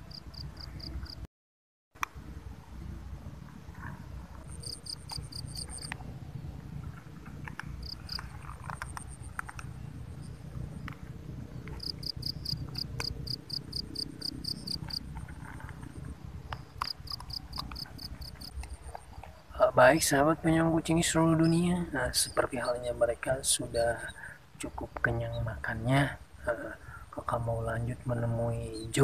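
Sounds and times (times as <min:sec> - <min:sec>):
insect chirping: 0:00.0 - 0:01.2, 0:03.9 - 0:06.0, 0:07.3 - 0:29.0
low rumble: 0:02.0 - 0:23.8.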